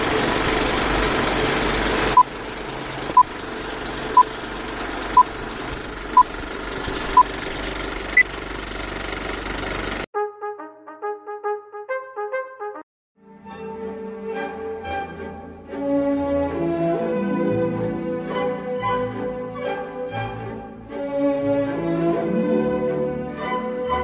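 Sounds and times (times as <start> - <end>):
film projector clattering: 0.0 - 10.1
brass music: 10.2 - 12.8.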